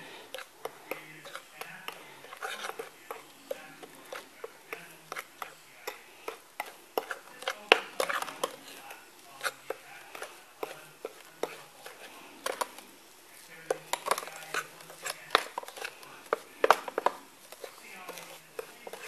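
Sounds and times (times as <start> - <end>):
metal spoon scraping glass bowl: 0.0 - 12.9, 13.6 - 19.0.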